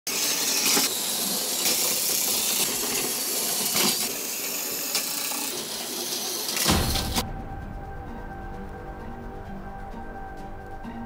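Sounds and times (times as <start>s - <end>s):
toy train motors whirring: 0.1s - 7.2s.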